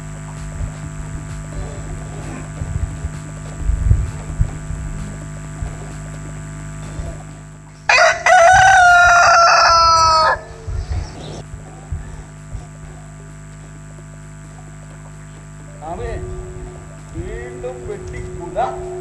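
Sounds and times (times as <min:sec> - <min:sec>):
low thuds: 0:00.0 - 0:06.4, 0:16.0 - 0:19.0
mains hum: 0:00.0 - 0:19.0
rooster crowing over speakers: 0:07.9 - 0:12.0.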